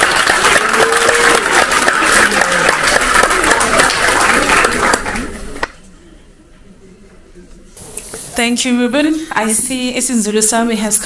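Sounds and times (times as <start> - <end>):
people applauding: 0.0 - 5.8.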